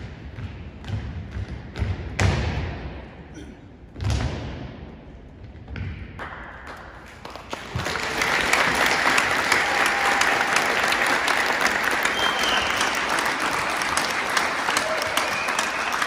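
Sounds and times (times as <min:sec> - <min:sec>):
audience applause: 0:07.2 - 0:16.0.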